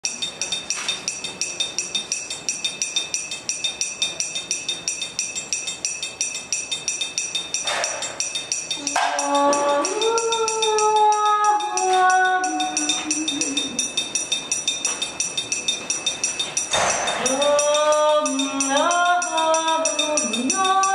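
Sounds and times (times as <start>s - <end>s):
metal jingles shaken: 0.0s - 20.9s
person singing long notes: 8.8s - 13.9s, 17.2s - 20.9s.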